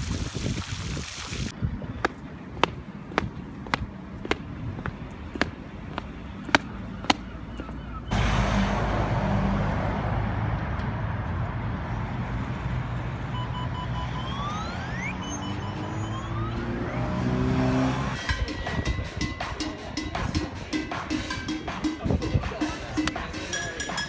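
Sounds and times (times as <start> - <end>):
road traffic: 1.5 - 24.0
footsteps on stone paving: 1.7 - 8.1
bus diesel engine running: 1.7 - 13.8
short beeps: 13.3 - 16.6
rising whistles: 13.8 - 17.2.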